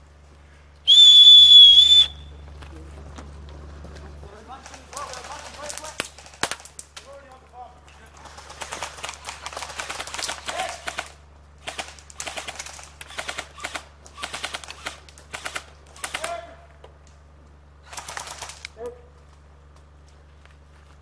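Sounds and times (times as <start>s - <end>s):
airsoft guns firing bursts: 4.5s - 7.4s, 8.0s - 16.7s, 17.8s - 18.8s.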